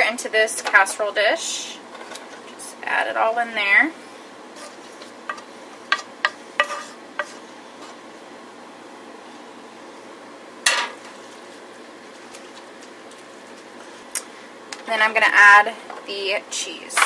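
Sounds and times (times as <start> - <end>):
food scraped into dish: 4.5 - 5.4, 6.0 - 8.0.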